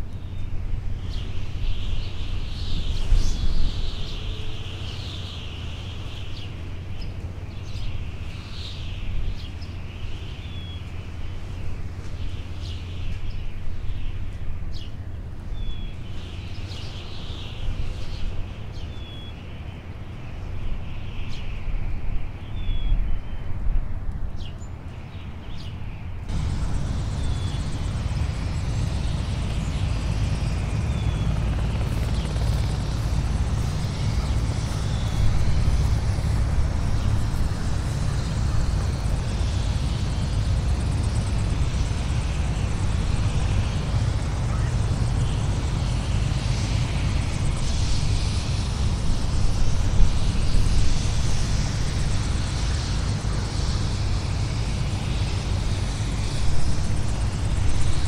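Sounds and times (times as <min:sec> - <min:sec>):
low engine drone: 0:00.0 - 0:22.8, 0:24.0 - 0:58.0.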